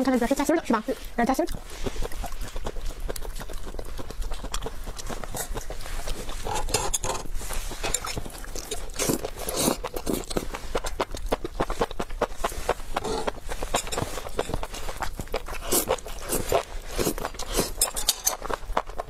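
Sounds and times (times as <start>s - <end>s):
slurping: 0.2s - 19.0s
wet chewing and smacking: 0.2s - 19.0s.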